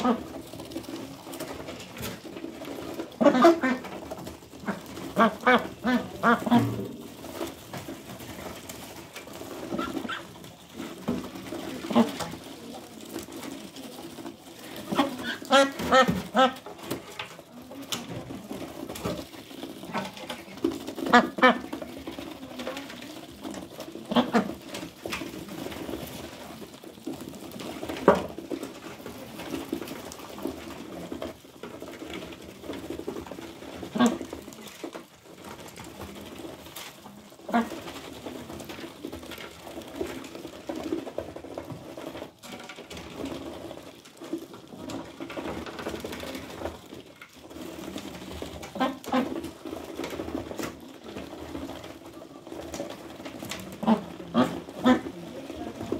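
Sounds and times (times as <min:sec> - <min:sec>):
duck bills dabbling in feed: 0:00.0 - 0:55.9
ducks quacking: 0:03.2 - 0:04.0, 0:04.6 - 0:06.9, 0:21.0 - 0:21.7.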